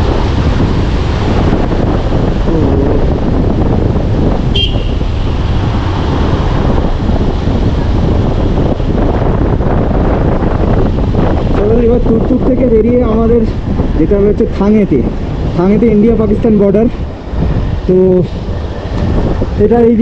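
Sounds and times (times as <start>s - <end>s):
motorcycle engine running: 0.0s - 12.1s
wind rush on microphone: 0.0s - 20.0s.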